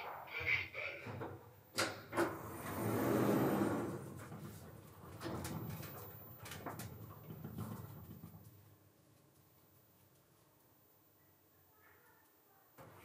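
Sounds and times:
elevator doors sliding rumble: 2.3s - 4.4s.

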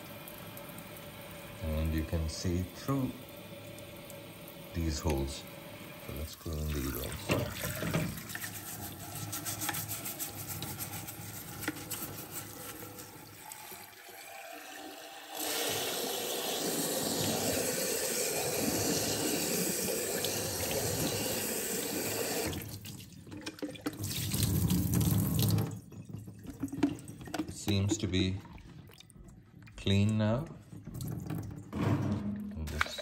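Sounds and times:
tap water running on plastic: 0.0s - 31.8s
bumps and splashes: 6.1s - 13.2s, 22.5s - 33.0s
brush scrubbing mesh: 8.1s - 13.4s.

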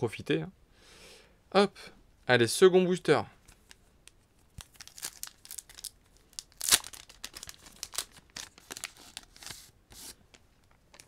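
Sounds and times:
foil wrapper crinkling and tearing: 3.5s - 9.7s
cards being handled: 6.5s - 11.0s.

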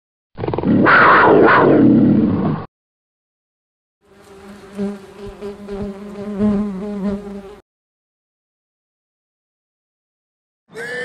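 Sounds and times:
bumblebee buzz: 4.0s - 7.6s.

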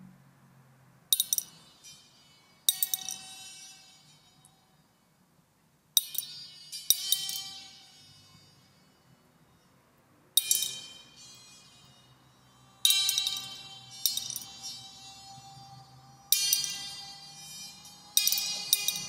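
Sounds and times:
glassy bell-like electronic tone: 1.2s - 5.2s, 6.0s - 9.8s, 10.4s - 19.0s
faint low drone: 10.9s - 19.0s.

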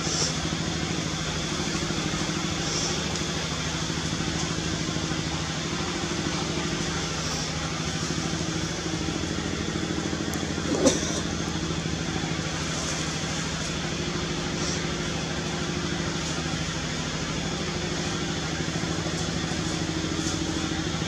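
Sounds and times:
engine idling: 0.0s - 21.0s.

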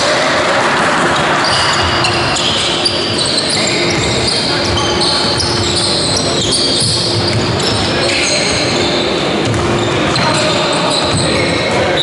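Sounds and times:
players calling out: 0.0s - 12.0s
shoes squeaking: 1.2s - 12.0s
ball bouncing on wooden court: 9.4s - 10.4s, 11.0s - 11.5s.

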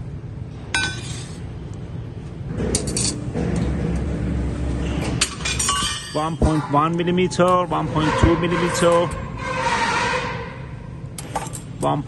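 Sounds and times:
low rumble: 2.0s - 5.7s
metal rings clinking: 5.3s - 7.5s.

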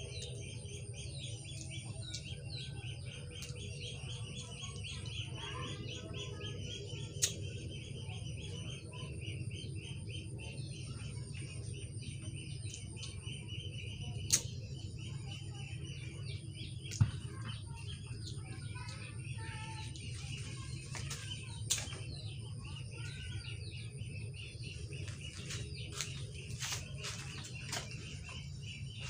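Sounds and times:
small birds chirping: 0.0s - 29.0s
steady low hum: 0.0s - 29.0s
sharp clicks: 14.3s - 14.5s.

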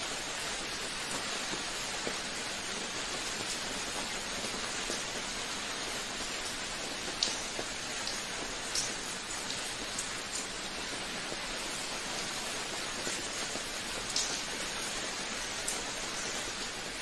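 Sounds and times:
steady rain patter: 0.0s - 17.0s.

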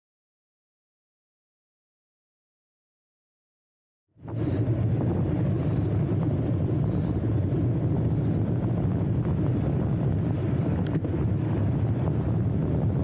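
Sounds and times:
road noise: 4.1s - 13.0s
wind buffeting microphone: 4.2s - 13.0s.

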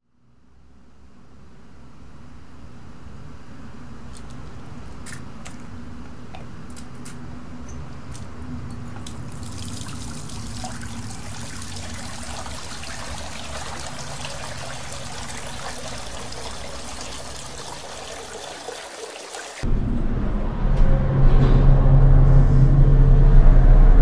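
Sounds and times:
tap water running into sink: 9.0s - 19.6s.

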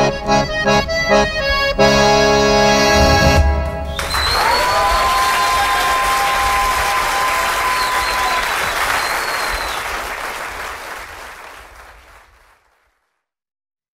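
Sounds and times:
audience applauding: 3.9s - 13.1s.

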